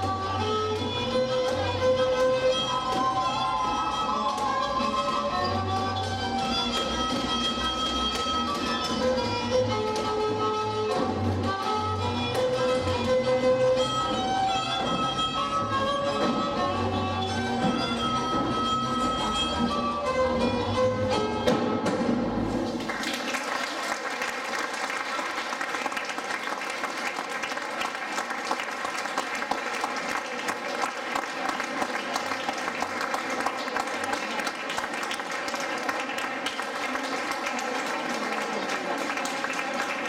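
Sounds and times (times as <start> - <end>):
folk dance tune with fiddle: 0.0 - 22.2
audience applauding: 22.8 - 40.0.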